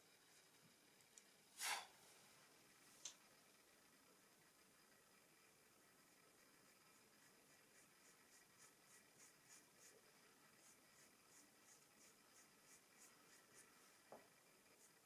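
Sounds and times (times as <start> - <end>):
pastel scratching on paper: 6.9 - 14.0, 14.7 - 15.0.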